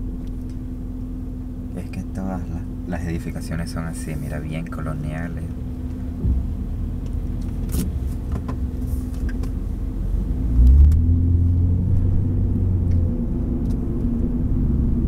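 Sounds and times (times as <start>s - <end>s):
car engine: 0.0s - 15.0s
road rumble: 0.0s - 15.0s.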